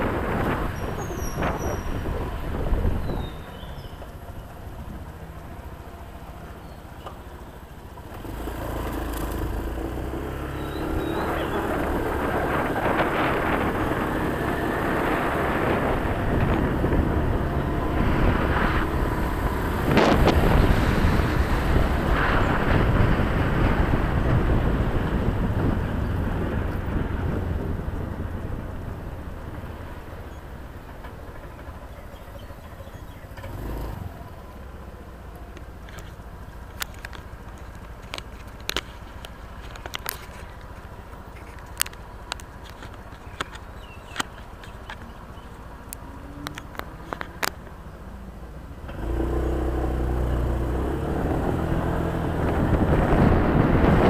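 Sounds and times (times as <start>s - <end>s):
wind buffeting microphone: 0.0s - 6.6s, 7.6s - 34.4s, 49.0s - 54.0s
scooter engine running: 0.0s - 54.0s.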